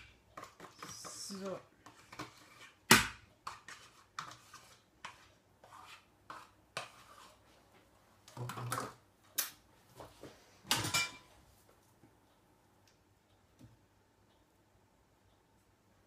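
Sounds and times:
spoon scraping plastic tub: 0:00.4 - 0:07.4.

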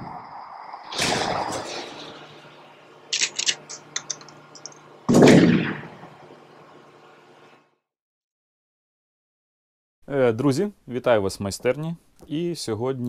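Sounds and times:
low steady drone: 0:00.8 - 0:07.7
loud gunshot-like bang: 0:00.9 - 0:02.1, 0:05.1 - 0:06.0
sharp clicks: 0:03.1 - 0:05.4.

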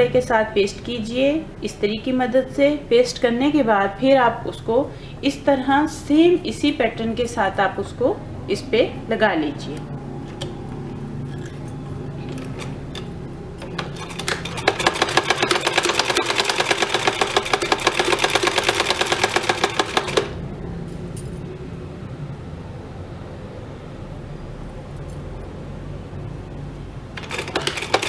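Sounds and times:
sewing machine clatter: 0:13.6 - 0:20.4, 0:27.2 - 0:28.0.

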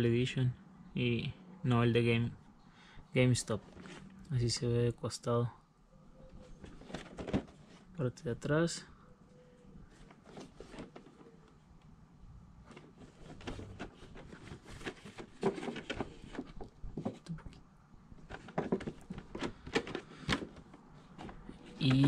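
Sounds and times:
fingers rustling on cardboard box: 0:12.7 - 0:17.3.

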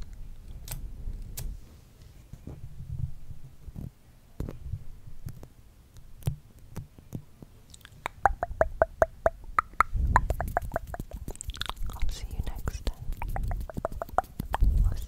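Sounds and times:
tongue clicks: 0:07.7 - 0:15.0
low microphone rumble: 0:08.3 - 0:15.0.

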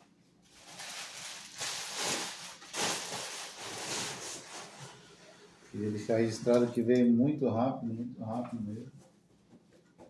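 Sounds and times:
nylon bag rustling: 0:00.4 - 0:04.8.

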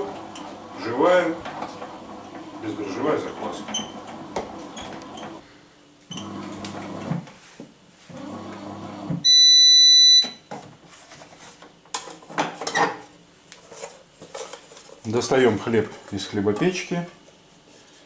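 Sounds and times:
bread machine beeping: 0:09.2 - 0:10.4.

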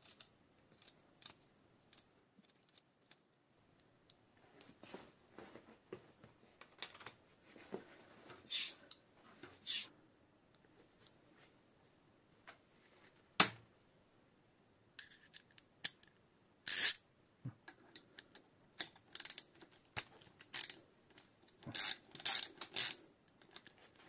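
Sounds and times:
socket ratchet clicking: 0:21.7 - 0:23.0.

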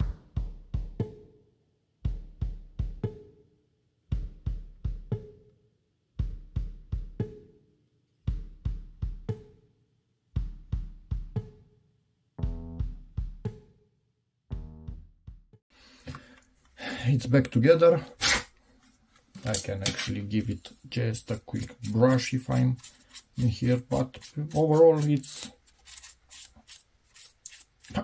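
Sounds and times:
heavy kick drum: 0:00.0 - 0:01.2, 0:02.1 - 0:03.2, 0:04.1 - 0:05.2, 0:06.2 - 0:07.4, 0:08.3 - 0:09.4, 0:10.4 - 0:11.5, 0:12.4 - 0:13.6
music with steady drum beat: 0:00.0 - 0:01.4, 0:02.0 - 0:03.4, 0:04.1 - 0:05.5, 0:06.2 - 0:07.6, 0:08.2 - 0:09.7, 0:10.3 - 0:11.8, 0:12.4 - 0:13.8, 0:14.5 - 0:15.6.

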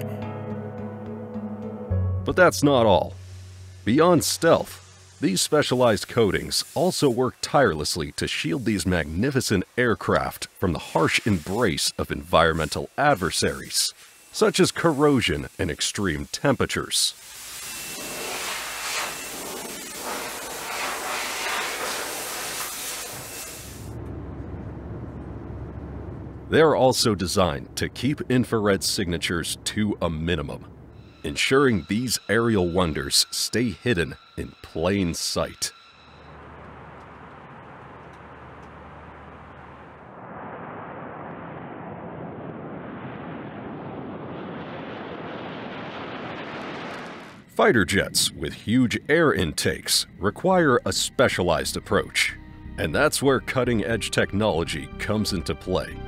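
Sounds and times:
jet engine rushing: 0:02.9 - 0:49.4
paint spray gun hissing: 0:03.1 - 0:23.9.

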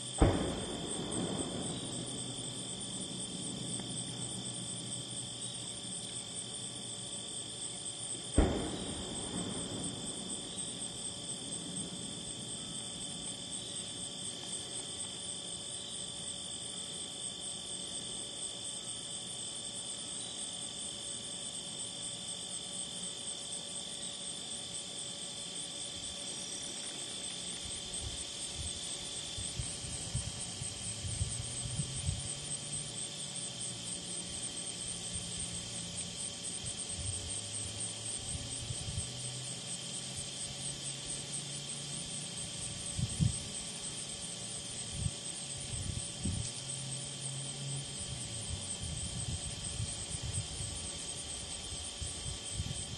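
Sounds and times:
crickets and insects trilling: 0:00.0 - 0:52.9
loud thump: 0:00.2 - 0:05.0, 0:08.3 - 0:13.9
faint low rumbling: 0:00.2 - 0:07.0.

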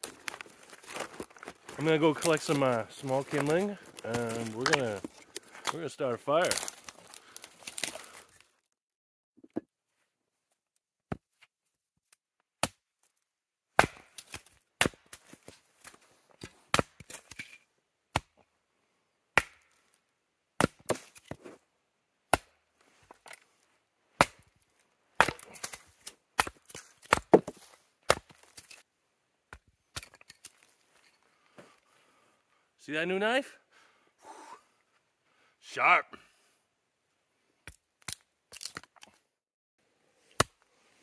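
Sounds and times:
split wood pieces rattling: 0:00.0 - 0:08.4
hatchet chopping wood: 0:12.6 - 0:12.8, 0:13.8 - 0:17.4, 0:18.1 - 0:18.4, 0:19.4 - 0:19.8, 0:20.6 - 0:21.4, 0:22.3 - 0:22.6, 0:24.2 - 0:24.5, 0:25.2 - 0:28.7, 0:40.4 - 0:40.6.

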